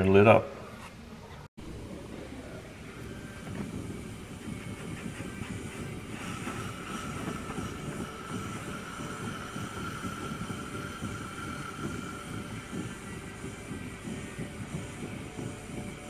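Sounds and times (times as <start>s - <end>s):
steady whistling tone: 2.7s - 16.0s
torch flame rushing: 3.2s - 16.0s.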